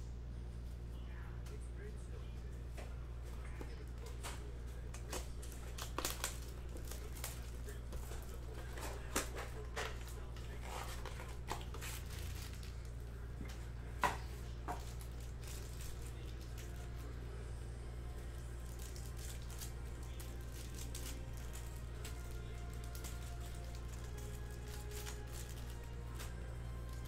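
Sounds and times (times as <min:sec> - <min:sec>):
steady low hum: 0:00.0 - 0:27.0
plastic shrink-wrap crinkling: 0:03.7 - 0:13.1, 0:14.4 - 0:17.2, 0:18.2 - 0:27.0.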